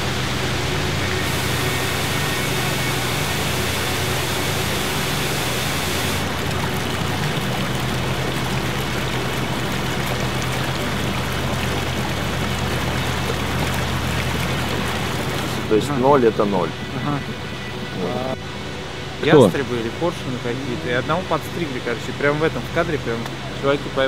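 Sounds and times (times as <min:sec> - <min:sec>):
stream rushing over boulders: 0:00.0 - 0:16.1
low steady hum: 0:00.0 - 0:24.0.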